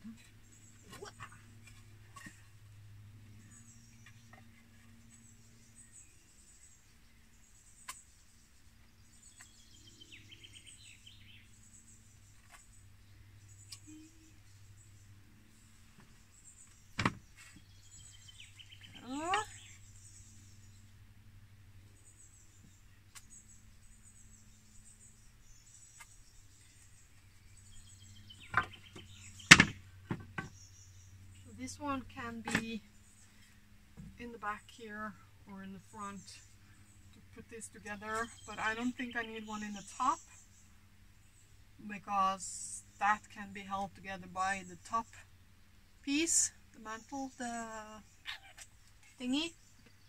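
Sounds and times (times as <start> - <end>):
faint high birdsong: 0.0 - 50.0
low steady hum: 0.0 - 50.0
faint bird chirps: 3.2 - 20.9.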